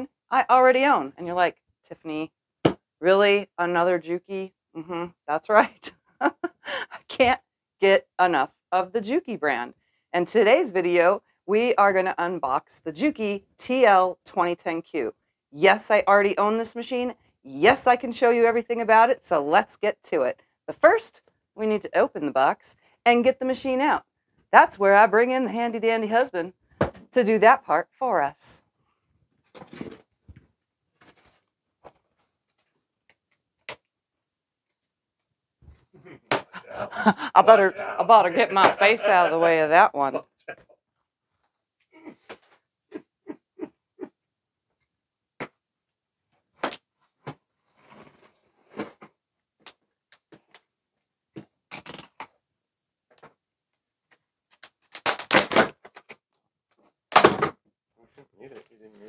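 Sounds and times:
rustling of cardboard and plastic strapping: 29.3s - 32.8s, 46.8s - 49.2s.

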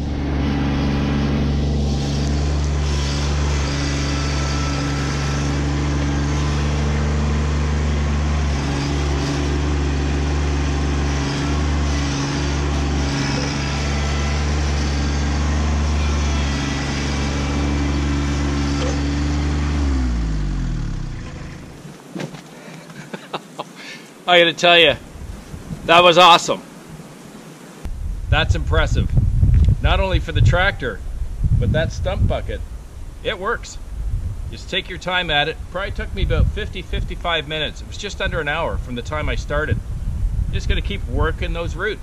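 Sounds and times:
diesel tractor engine running: 0.0s - 21.8s.

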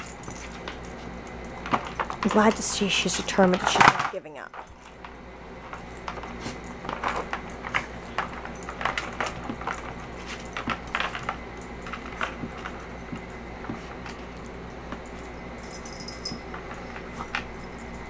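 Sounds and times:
collar tag jingling: 0.0s - 3.6s, 5.7s - 18.0s.

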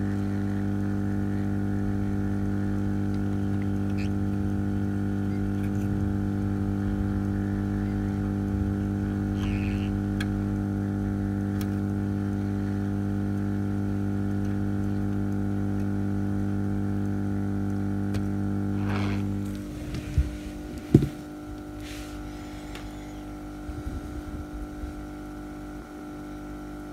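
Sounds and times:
hot air blower humming: 0.0s - 26.9s.

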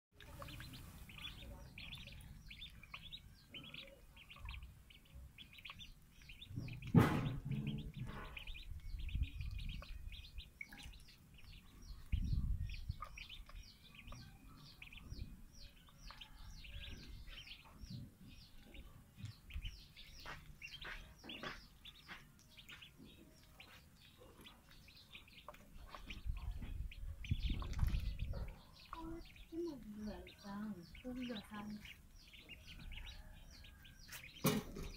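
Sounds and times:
ducklings peeping: 0.2s - 34.9s
dull low bump: 4.4s - 10.5s, 25.8s - 34.9s
loud thump: 6.5s - 8.4s.

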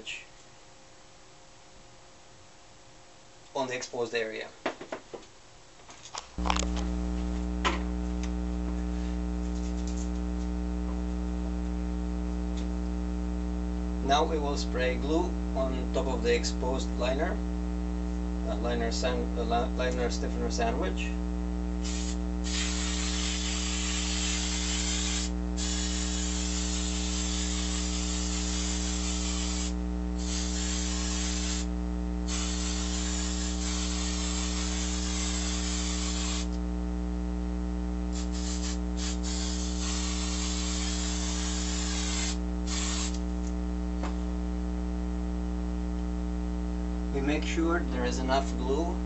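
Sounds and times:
mains hum: 0.0s - 49.0s
aerosol can hissing: 21.8s - 31.7s, 32.3s - 36.5s, 38.1s - 43.2s.

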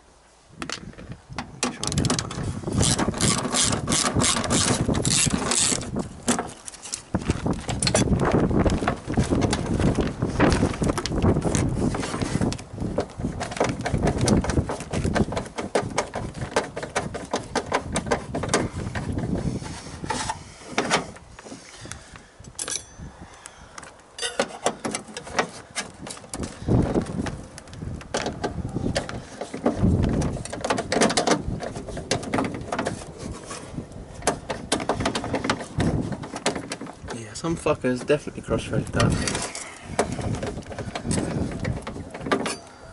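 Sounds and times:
hand ratchet clicking: 2.8s - 5.9s.

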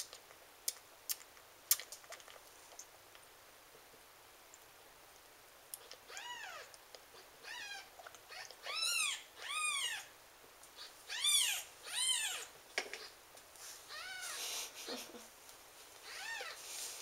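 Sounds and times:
kitten squealing mews: 7.4s - 10.1s, 11.1s - 12.5s, 16.0s - 16.6s.

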